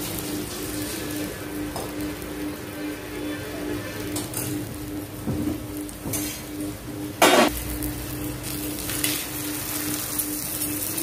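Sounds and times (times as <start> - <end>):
loud sizzle burst: 0.0 - 5.2, 7.2 - 11.0
ghee sizzling on a hot pan: 0.0 - 11.0.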